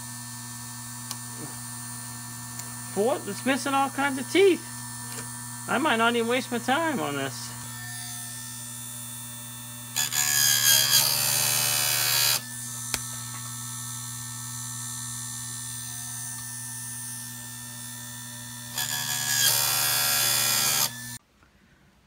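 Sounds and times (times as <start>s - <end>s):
sharpener motor humming: 0.0s - 21.2s
grinding wheel on chain tooth: 9.9s - 12.5s, 15.6s - 21.2s.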